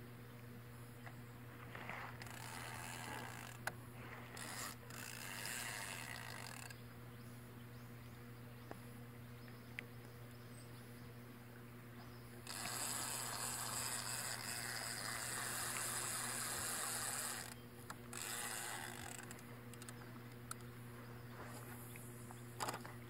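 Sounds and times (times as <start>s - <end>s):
fishing reel gear whirring: 1.7s - 6.8s, 12.4s - 20.7s, 22.6s - 22.9s.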